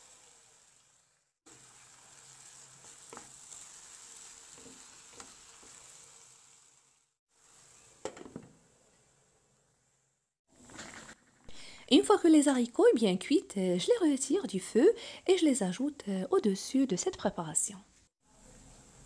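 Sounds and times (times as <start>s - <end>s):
food sizzling in a frying pan: 0.0s - 10.0s
wooden spatula scraping a pan: 1.5s - 6.7s, 7.4s - 9.1s.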